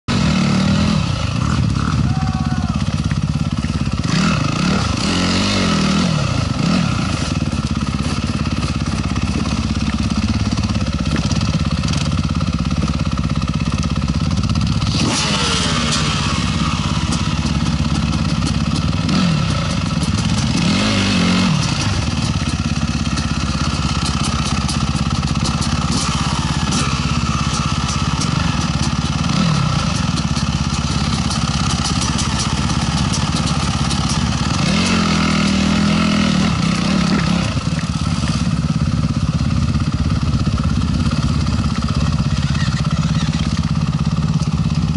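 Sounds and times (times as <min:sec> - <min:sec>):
dirt bike engine idling: 0:00.1 - 0:44.9
dirt bikes and atv revving: 0:00.1 - 0:44.9.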